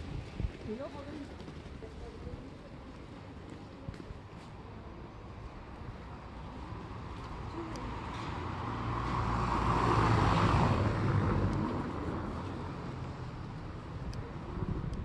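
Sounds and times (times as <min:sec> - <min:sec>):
vehicle passing by: 0:06.7 - 0:13.8.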